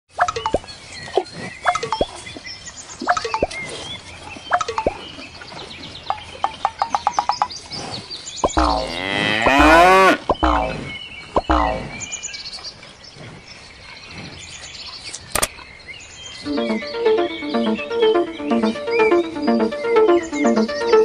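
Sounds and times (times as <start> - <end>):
cartoon pops and clicks: 0.2 - 0.6, 3.0 - 3.6, 4.5 - 5.0, 10.3 - 10.8, 11.4 - 11.9
cow mooing: 8.7 - 10.2.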